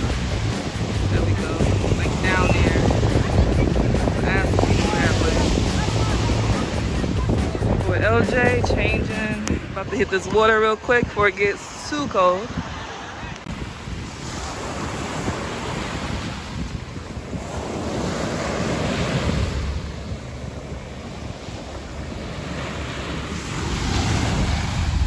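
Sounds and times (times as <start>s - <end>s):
ocean surf washing on beach: 0.0s - 25.0s
wind buffeting microphone: 0.0s - 25.0s.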